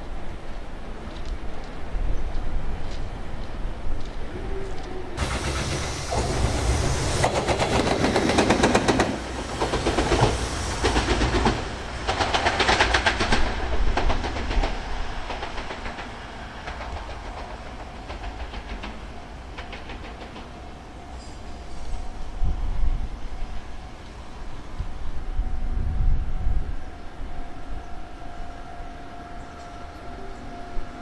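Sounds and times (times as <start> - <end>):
freight train wheels clacking: 5.2 - 21.4.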